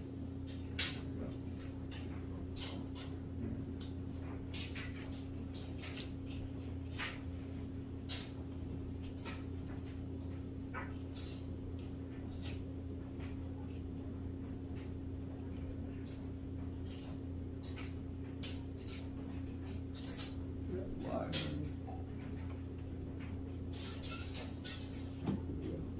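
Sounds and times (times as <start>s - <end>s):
steady low hum: 0.0s - 25.9s.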